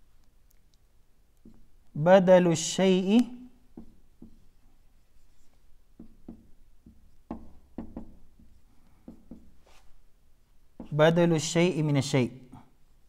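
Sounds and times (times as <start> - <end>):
marker writing on whiteboard: 1.4 - 1.8, 3.1 - 10.1, 10.7 - 11.5.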